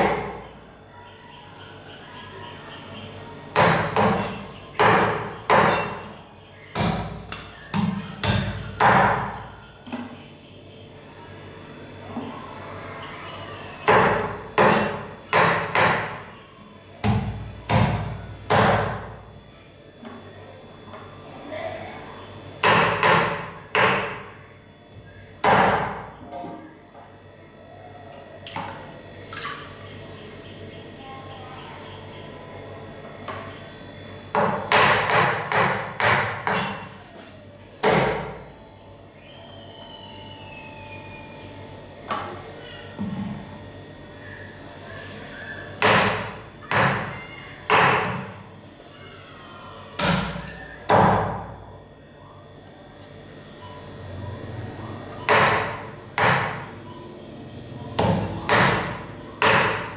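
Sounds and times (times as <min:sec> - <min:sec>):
meat cleaver chopping on wooden board: 0:17.0 - 0:19.0, 0:34.3 - 0:37.0, 0:55.3 - 0:56.7, 0:58.0 - 0:59.9
water splashing in sink: 0:28.4 - 0:30.0.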